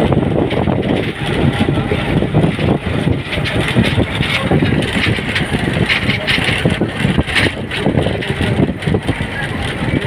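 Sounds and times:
engine road and wind noise: 0.0s - 10.0s.

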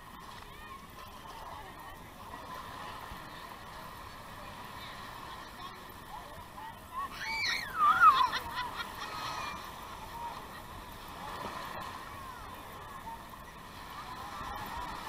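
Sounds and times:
crowd of distant voices: 0.0s - 15.0s
small waves washing in: 0.0s - 15.0s
loud high-pitched shout: 7.1s - 8.2s.

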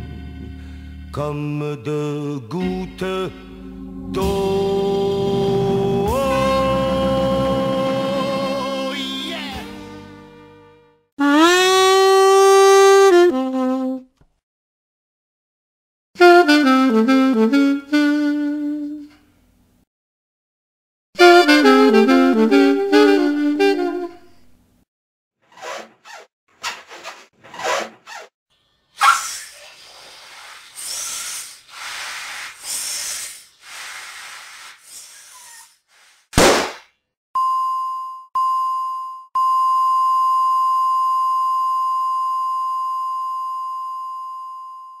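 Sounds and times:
short noisy swishes and hits: 25.6s - 28.3s, 36.2s - 36.9s
loud sharp hit: 36.4s - 36.8s.

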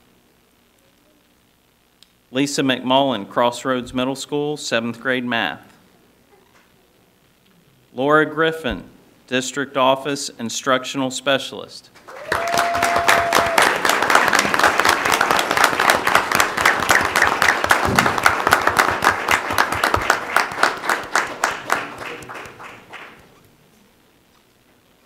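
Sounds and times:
audience applause: 12.0s - 23.4s.

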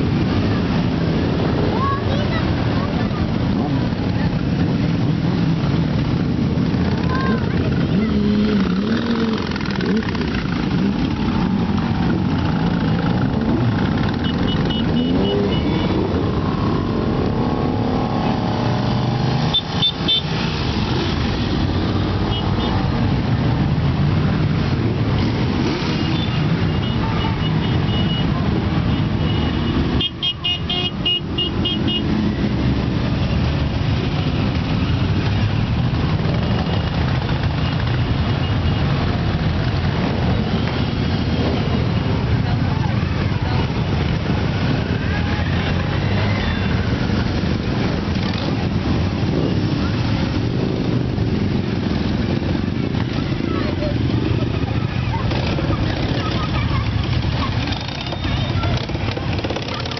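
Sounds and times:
motorcycle engines revving: 0.0s - 59.9s
horns tooting: 12.2s - 17.0s, 52.8s - 59.9s.

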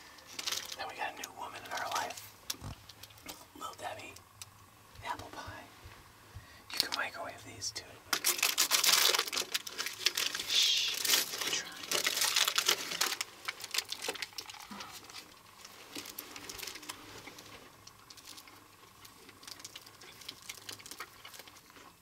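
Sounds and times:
plastic wrapper crinkling: 0.2s - 1.0s, 8.1s - 21.8s.

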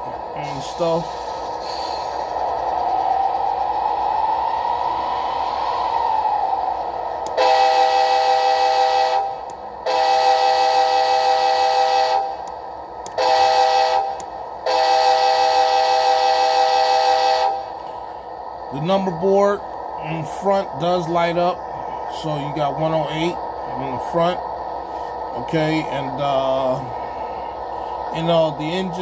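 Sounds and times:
diesel engine running: 0.0s - 5.1s, 5.8s - 29.0s
multi-tone horn blasts: 7.3s - 12.4s, 13.1s - 17.7s.

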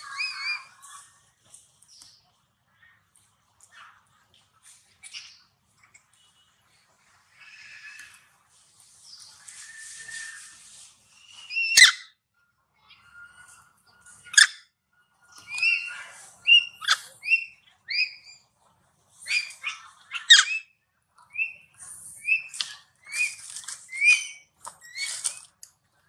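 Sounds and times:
baby monkey squeaking: 11.5s - 12.1s, 15.5s - 18.3s, 19.3s - 20.7s, 22.2s - 25.4s.

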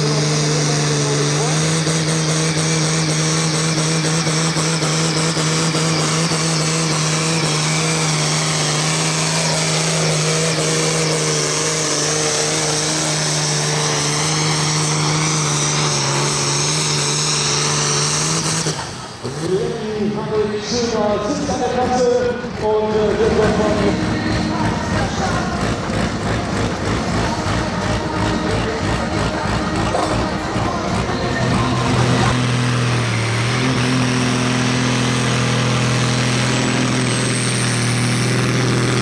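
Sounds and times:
turbo whine: 0.0s - 20.1s
tractor engine at full throttle: 0.0s - 39.0s.

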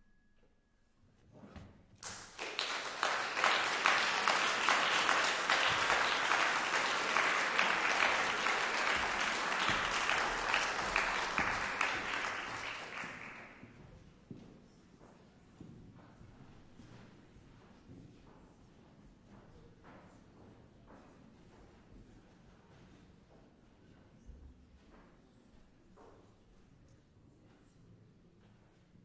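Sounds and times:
audience applause: 2.0s - 13.6s.

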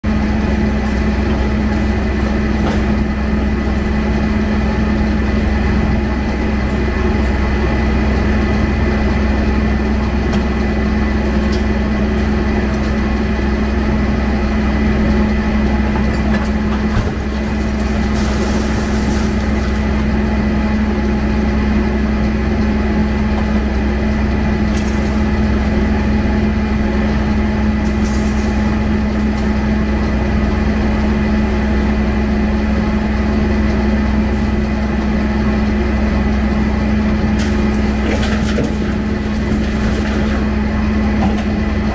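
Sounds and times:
excavator diesel engine humming: 0.0s - 41.9s
debris clattering into truck bed: 16.0s - 20.0s, 24.7s - 25.6s, 27.8s - 29.6s, 37.3s - 41.9s.

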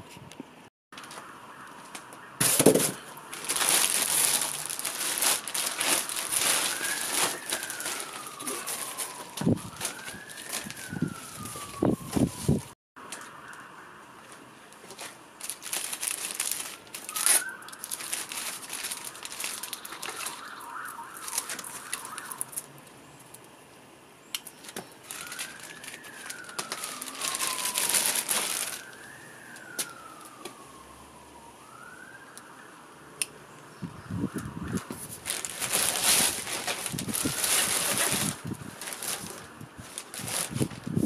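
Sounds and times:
distant siren wailing: 0.9s - 23.4s, 24.6s - 41.0s
plastic bag crinkling: 2.4s - 12.6s, 14.7s - 23.4s, 24.4s - 29.1s, 35.0s - 41.0s.

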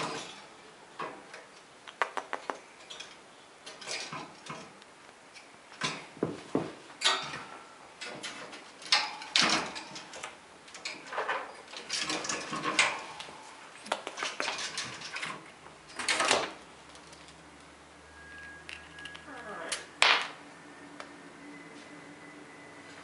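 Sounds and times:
metal bars rattling: 2.8s - 4.8s, 7.0s - 13.5s, 14.1s - 17.2s.

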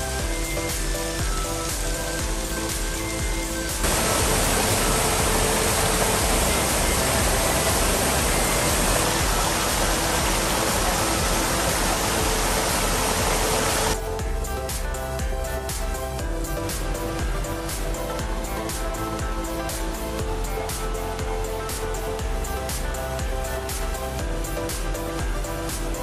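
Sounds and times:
music: 0.0s - 26.0s
waterfall rushing: 1.3s - 14.0s.

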